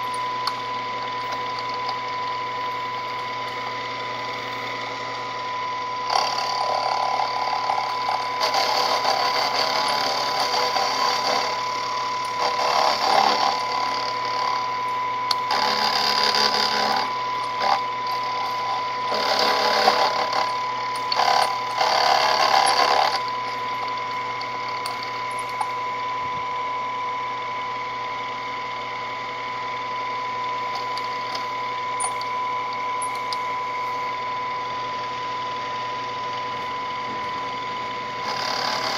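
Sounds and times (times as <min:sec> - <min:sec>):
end mill cutting metal: 0:00.0 - 0:35.7, 0:36.6 - 0:38.9
milling machine whine: 0:00.0 - 0:38.9.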